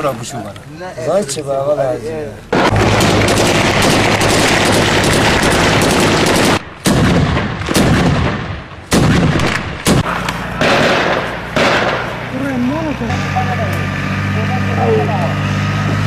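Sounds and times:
automatic gunfire burst: 0:02.5 - 0:12.3
single gunshots echoing: 0:06.5 - 0:12.3.

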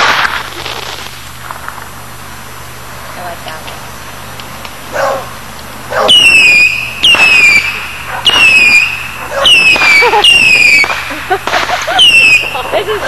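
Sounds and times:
firework whistles falling in pitch: 0:06.1 - 0:12.8.

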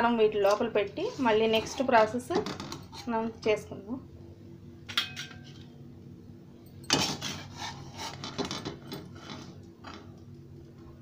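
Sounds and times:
metal spatula scraping a frying pan: 0:01.0 - 0:02.1.

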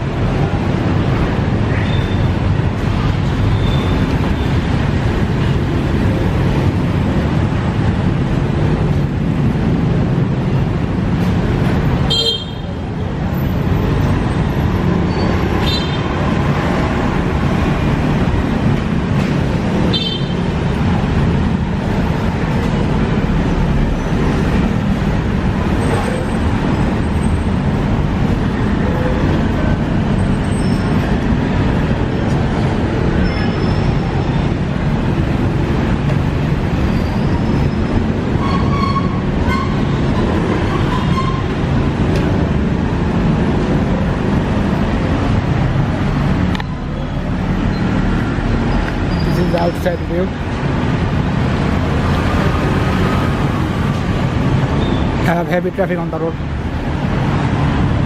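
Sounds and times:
street traffic noise: 0:00.0 - 0:58.0.

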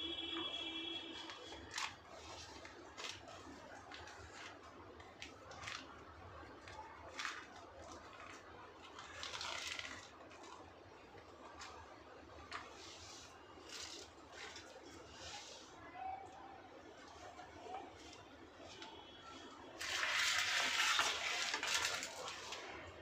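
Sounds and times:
soil and plants rustling: 0:17.0 - 0:23.0.

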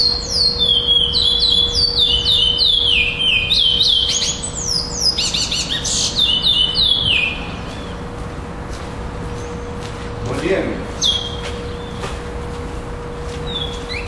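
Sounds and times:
finch singing whistled notes: 0:00.0 - 0:08.0, 0:11.0 - 0:12.0, 0:13.5 - 0:14.0.

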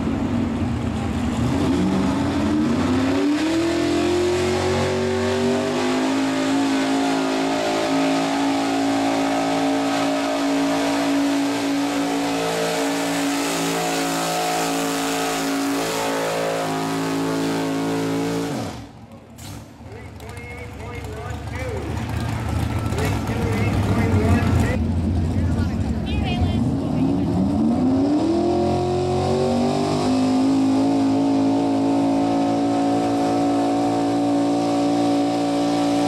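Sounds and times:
truck engine at full throttle: 0:00.0 - 0:36.0.

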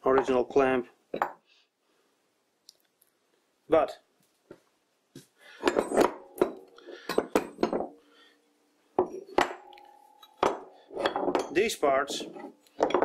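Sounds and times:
metal parts clanking on workbench: 0:05.6 - 0:08.0, 0:09.0 - 0:13.0.

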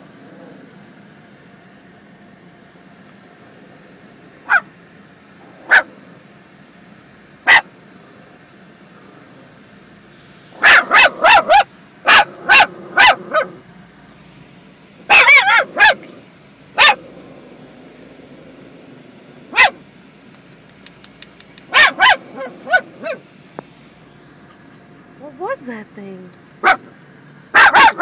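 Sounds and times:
car wash low noise: 0:00.0 - 0:28.0
small dog yapping: 0:04.4 - 0:04.7, 0:05.6 - 0:05.9, 0:07.5 - 0:07.7, 0:10.6 - 0:13.6, 0:15.1 - 0:16.1, 0:16.8 - 0:17.0, 0:19.5 - 0:19.8, 0:20.8 - 0:23.2, 0:26.6 - 0:26.9, 0:27.6 - 0:28.0.

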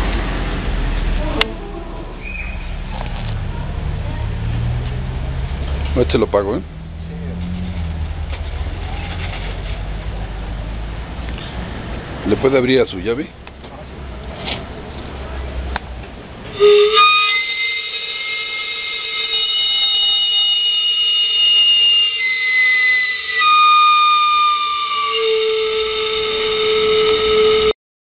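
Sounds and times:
loud high steam whistle: 0:16.5 - 0:27.8.

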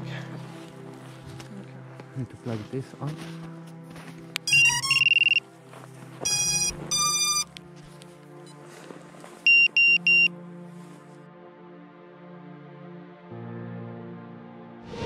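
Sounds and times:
background music: 0:00.0 - 0:15.0
electronic startup beeps: 0:04.5 - 0:05.4, 0:06.3 - 0:07.5, 0:09.5 - 0:10.3.

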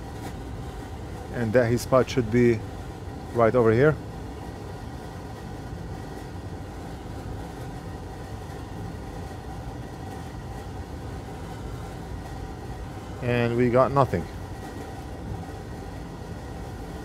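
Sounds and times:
low hum with hiss: 0:00.0 - 0:17.0.

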